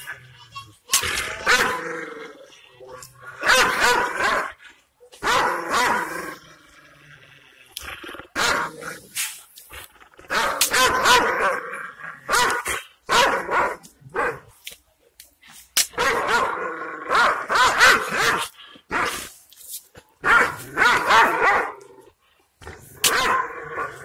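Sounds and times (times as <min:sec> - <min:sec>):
large dog barking aggressively: 0:01.4 - 0:02.0, 0:03.3 - 0:04.6, 0:05.2 - 0:06.4, 0:08.3 - 0:08.9, 0:10.3 - 0:14.5, 0:16.0 - 0:19.3, 0:20.2 - 0:22.0, 0:23.0 - 0:24.0.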